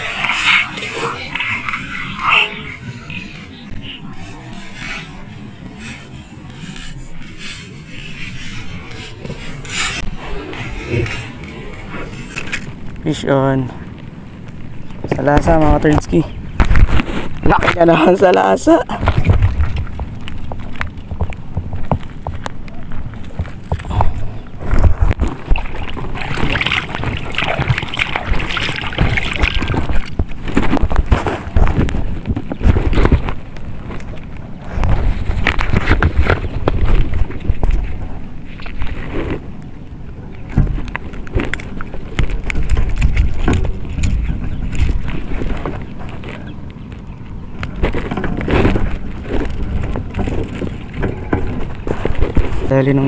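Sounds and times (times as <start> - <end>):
handling noise rubbing and scraping: 0.0 - 14.5, 15.1 - 53.0
wind: 0.0 - 53.0
fish splashing in water: 19.0 - 52.6.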